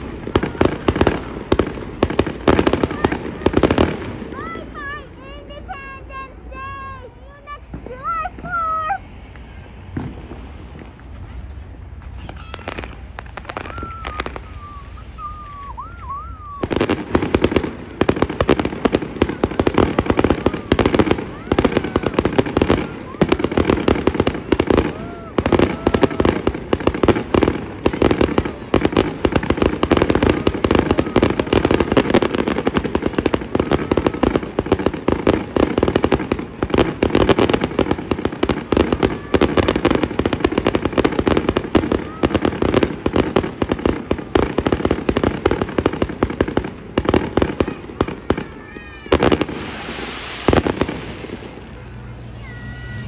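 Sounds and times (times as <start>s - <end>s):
fireworks bangs and crackling: 0.0s - 53.0s
loud hiss: 7.6s - 24.8s, 49.2s - 53.0s.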